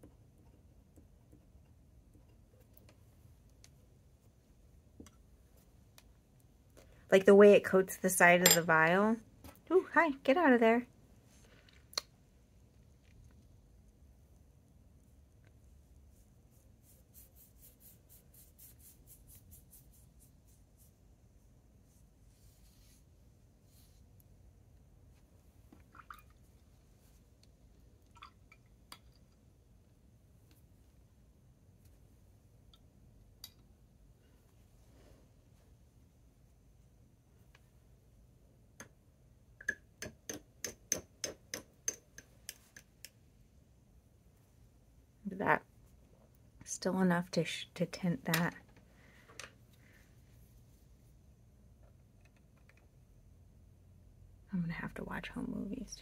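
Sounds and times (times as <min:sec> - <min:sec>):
paintbrush swishing on paper: 0:15.9 - 0:24.1
pen tapping glass jar: 0:39.6 - 0:42.3.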